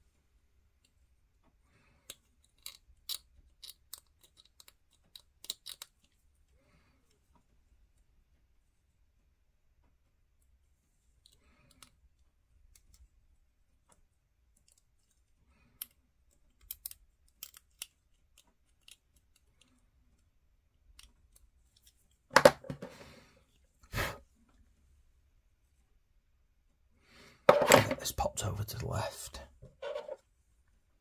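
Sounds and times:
hobby knife clicking and scraping: 0:02.1 - 0:06.0.

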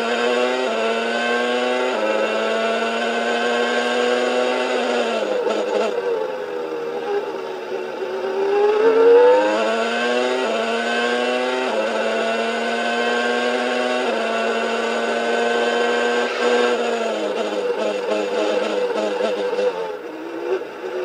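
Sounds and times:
racing car engine at full throttle: 0:00.0 - 0:21.0
engine pitch dropping at gear upshifts: 0:03.0 - 0:20.8.

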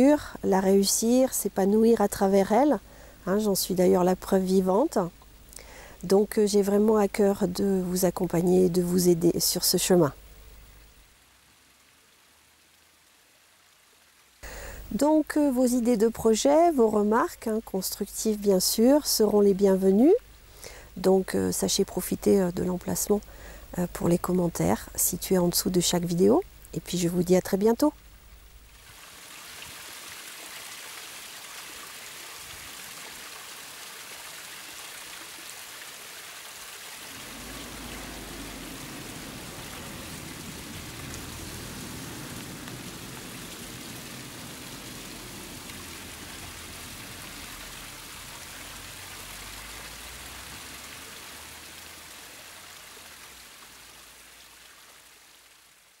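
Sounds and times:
steady rushing noise: 0:37.1 - 0:45.9.

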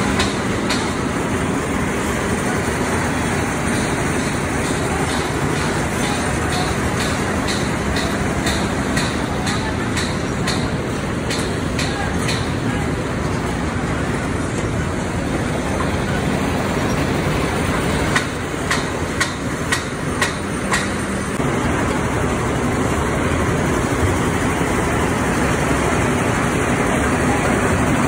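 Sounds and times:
concrete mixer rumbling: 0:00.0 - 0:28.0
sharp clanks: 0:03.6 - 0:12.7, 0:18.0 - 0:21.4.

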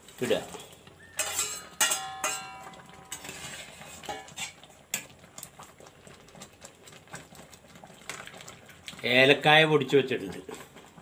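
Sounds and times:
ladle tapping and scraping pot: 0:00.0 - 0:05.6.

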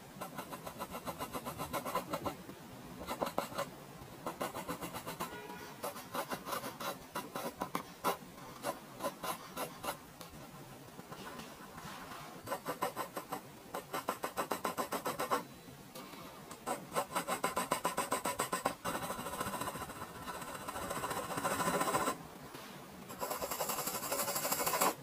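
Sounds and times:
pencil scratching on paper: 0:00.2 - 0:02.4, 0:03.0 - 0:03.7, 0:04.3 - 0:10.0, 0:11.9 - 0:15.4, 0:16.6 - 0:22.2, 0:23.1 - 0:25.0.

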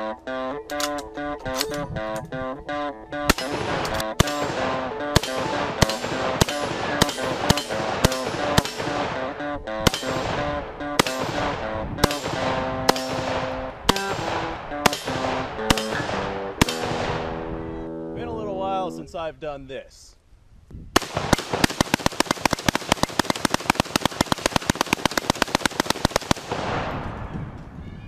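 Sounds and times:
background music: 0:00.0 - 0:19.2
rifle shots with echo: 0:03.3 - 0:17.5, 0:21.0 - 0:27.4.

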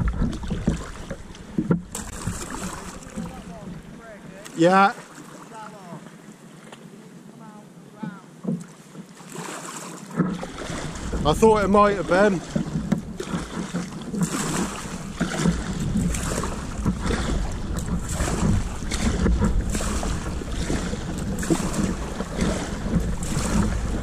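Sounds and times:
wind rumbling on microphone: 0:00.0 - 0:04.4, 0:10.2 - 0:24.0
water splashing around kayak: 0:00.0 - 0:24.0.

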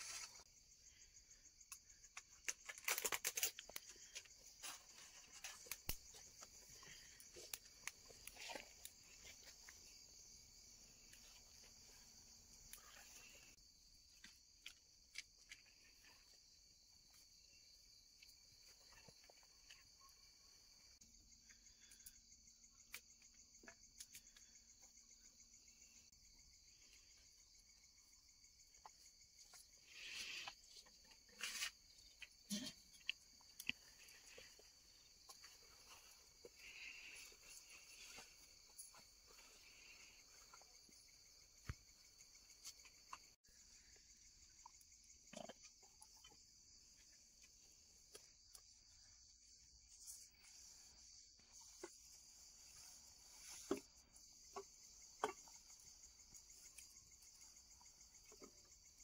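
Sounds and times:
rustles: 0:00.0 - 0:00.5, 0:01.8 - 0:10.1, 0:28.8 - 0:43.3, 0:51.5 - 0:54.1
high-pitched insect chorus: 0:00.0 - 0:59.0.

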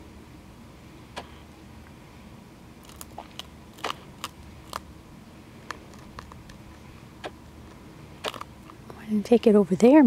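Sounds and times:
rabbit chewing seeds: 0:02.8 - 0:09.8.

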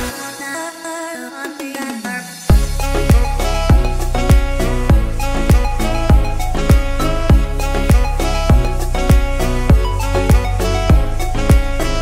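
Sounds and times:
electronic music track: 0:00.0 - 0:12.0.

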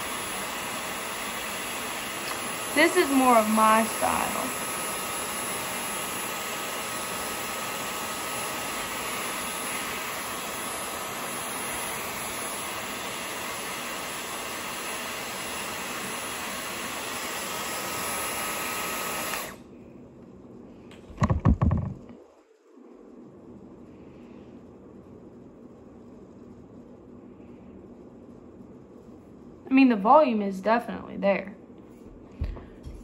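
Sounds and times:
hair styler air rush and whine: 0:00.0 - 0:19.7.

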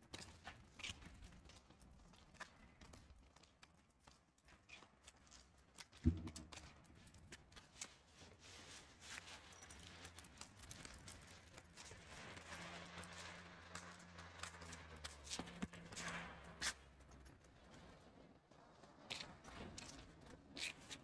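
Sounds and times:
faint footsteps: 0:06.0 - 0:07.2
short low thump: 0:06.1 - 0:06.5.

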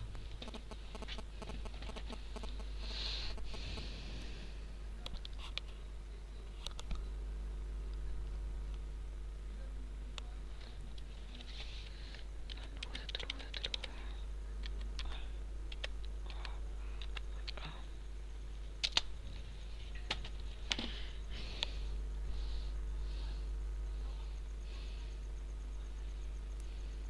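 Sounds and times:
low electrical hum: 0:00.0 - 0:27.0
typing on computer keyboard: 0:12.5 - 0:14.0, 0:14.6 - 0:17.6.

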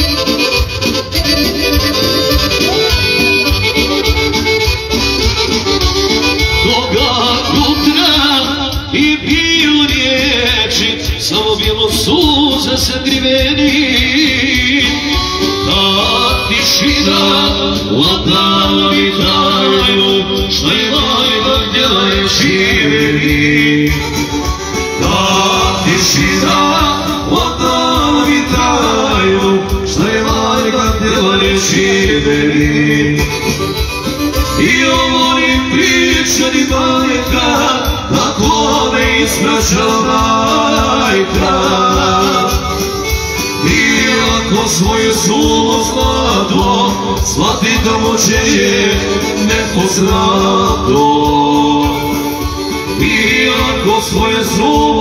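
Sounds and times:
electronic keyboard: 0:00.0 - 0:55.0
man singing into microphone: 0:06.3 - 0:55.0.

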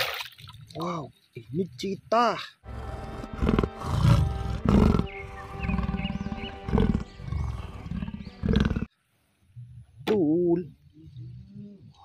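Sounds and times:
big cat roaring and growling: 0:02.7 - 0:08.9
soft background music: 0:02.7 - 0:08.9.

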